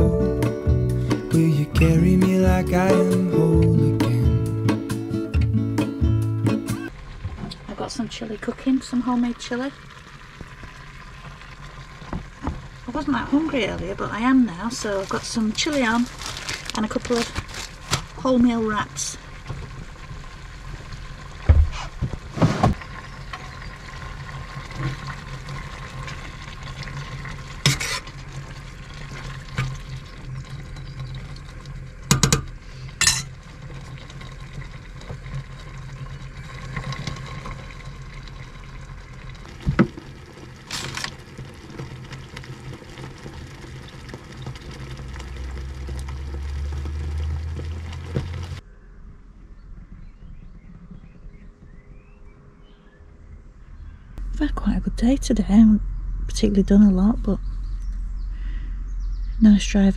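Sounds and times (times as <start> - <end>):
gas burners: 2.3 - 48.6
metal knocks against pot: 32.1 - 33.3
low rumble: 44.5 - 59.9.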